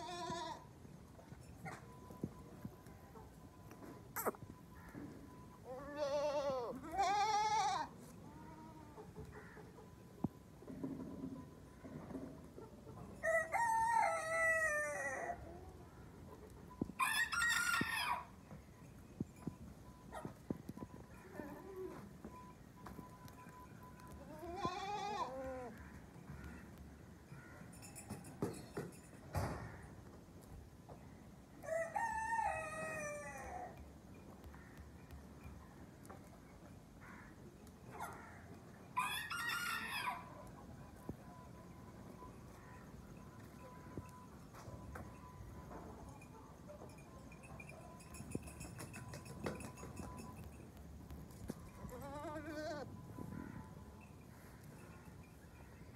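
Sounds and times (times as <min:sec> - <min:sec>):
goat bleating: 0:05.7 - 0:09.0, 0:24.3 - 0:25.7, 0:51.9 - 0:52.9.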